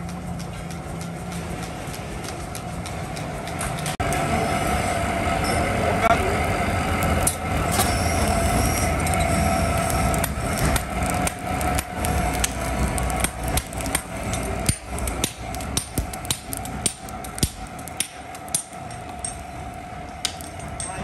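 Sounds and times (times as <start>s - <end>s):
steady hum: 0.0s - 21.0s
hammers striking hot iron: 5.4s - 21.0s.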